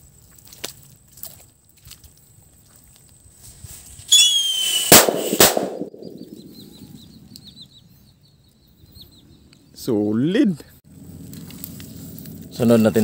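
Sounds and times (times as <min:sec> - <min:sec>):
firecracker whistle: 0:04.0 - 0:06.2
firecracker bangs: 0:04.1 - 0:06.5
rumble: 0:05.4 - 0:07.7, 0:10.9 - 0:13.0.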